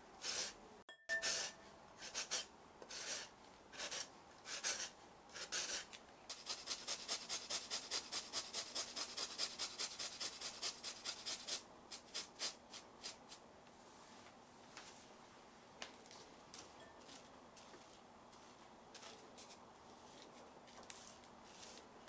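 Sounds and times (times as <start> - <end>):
sweet potato grating on rasp: 2.0 - 13.3.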